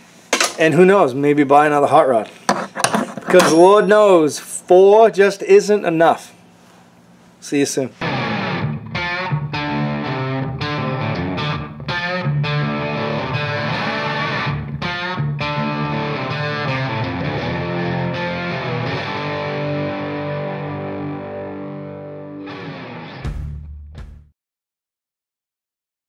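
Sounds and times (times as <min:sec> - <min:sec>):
distorted electric guitar chords: 0:08.0 - 0:24.2.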